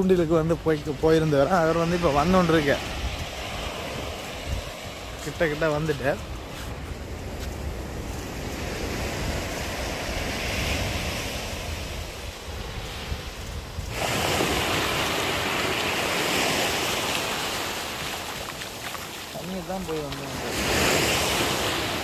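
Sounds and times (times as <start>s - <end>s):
surf breaking on beach: 0.0s - 22.0s
wind rumbling on microphone: 0.0s - 22.0s.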